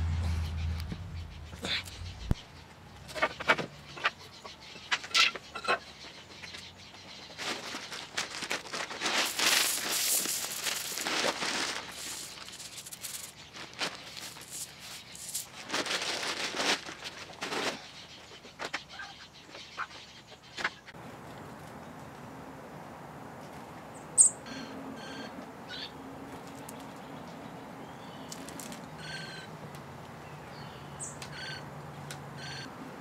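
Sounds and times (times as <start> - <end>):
seeds pattering on brick: 7.3 - 17.8, 26.3 - 27.0, 28.3 - 28.9.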